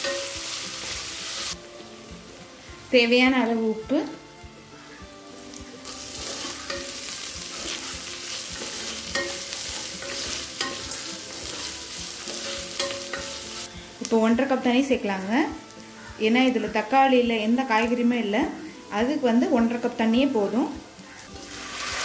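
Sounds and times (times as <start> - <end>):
onions sizzling in ghee: 0.0 - 22.0
wooden spatula scraping pan: 7.4 - 12.5.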